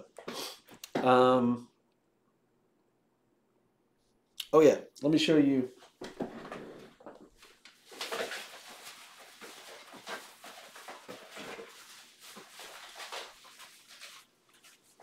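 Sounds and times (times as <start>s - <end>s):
rummaging and rustling: 5.9s - 15.0s.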